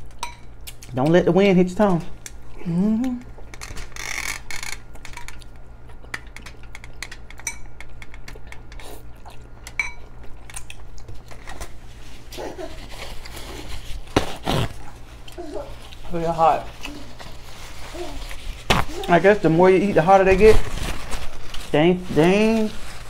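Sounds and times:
forks clinking on glass bowls: 0.2s - 0.5s, 7.4s - 7.8s, 9.8s - 10.1s
person murmuring: 2.6s - 3.3s.

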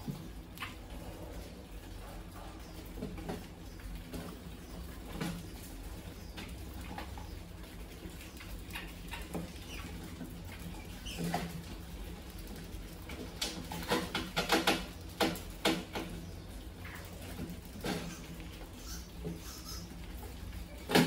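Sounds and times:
mice scratching and tapping: 2.2s - 21.0s
mice squeaking: 17.8s - 20.1s.

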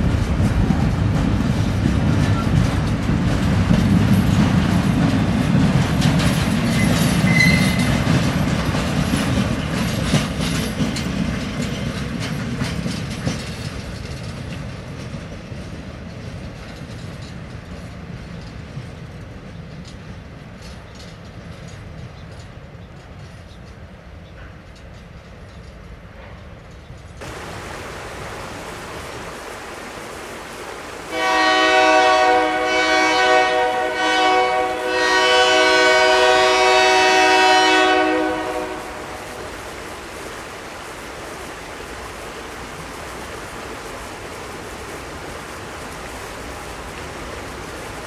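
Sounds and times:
background hiss: 27.2s - 48.0s
train horn chord: 31.1s - 39.4s.

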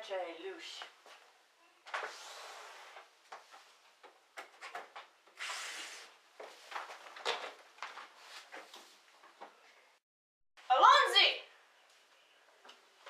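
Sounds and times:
curtains rustling: 5.4s - 9.4s.

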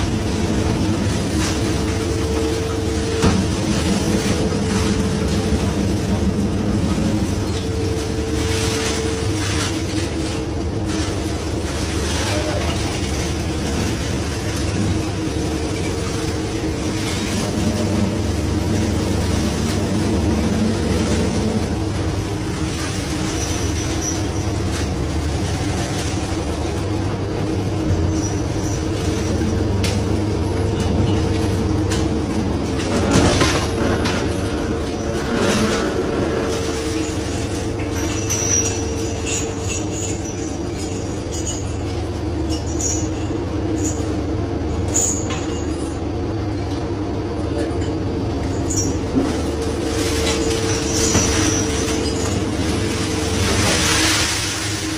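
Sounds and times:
boat engine drone: 0.0s - 54.9s.

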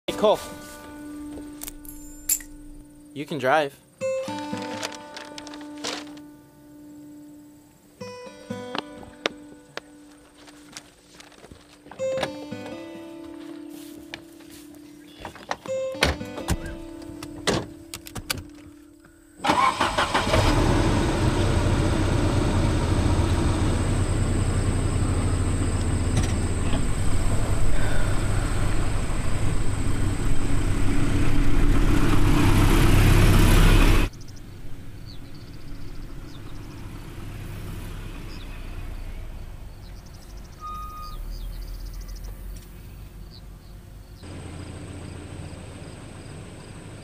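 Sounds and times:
car engine revving: 19.5s - 42.6s, 43.6s - 47.0s.

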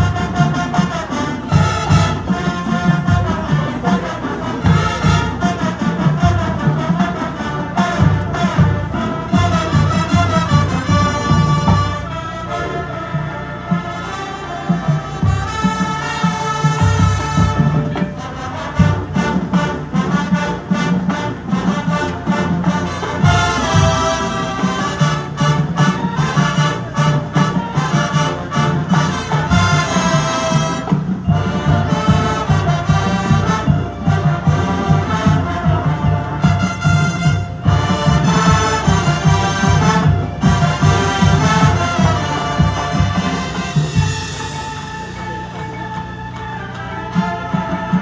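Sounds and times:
marching band playing: 0.0s - 48.0s
sharp percussion hits: 13.6s - 48.0s.

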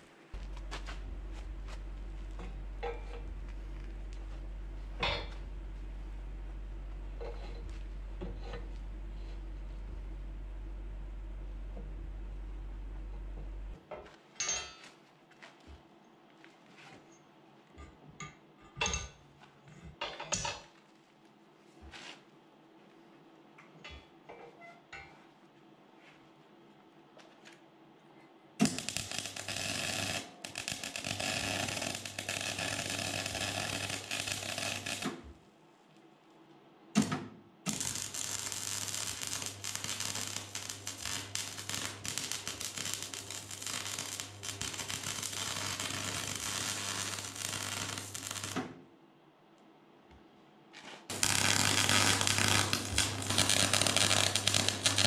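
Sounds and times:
electric arc welding crackling: 0.0s - 5.8s, 28.6s - 35.2s, 37.7s - 48.7s, 51.1s - 55.0s
steady mains buzz: 0.0s - 14.8s, 28.6s - 35.4s, 36.8s - 48.9s, 51.1s - 55.0s.

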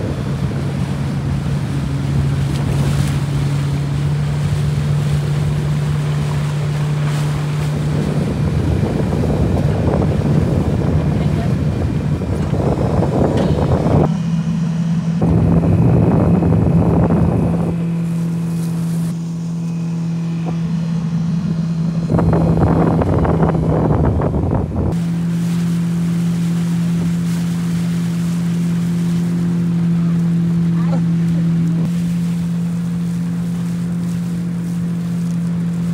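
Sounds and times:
wind rushing on microphone: 0.0s - 6.6s, 7.4s - 14.2s, 15.2s - 19.2s, 21.3s - 25.0s
outboard motor humming: 0.0s - 35.9s
water noise: 0.0s - 35.9s.

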